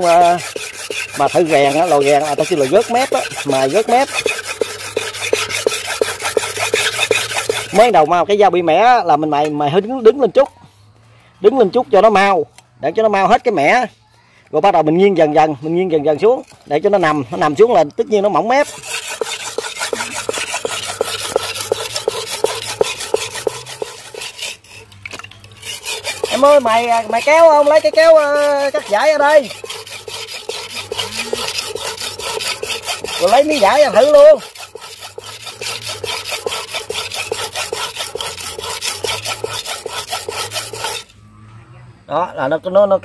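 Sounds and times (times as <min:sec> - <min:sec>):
knife scraping on sharpening stone: 0:00.0 - 0:08.0, 0:18.6 - 0:41.1.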